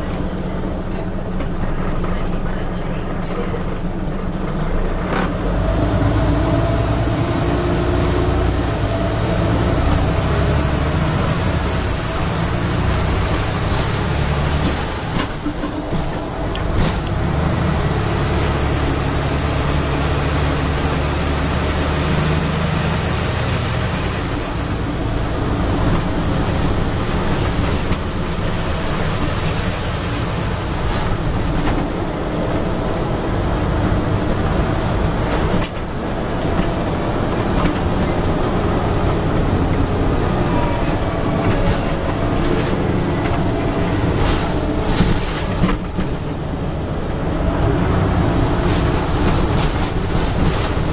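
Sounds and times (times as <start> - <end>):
bus engine drone: 0.0 - 50.9
road rumble: 0.0 - 50.9.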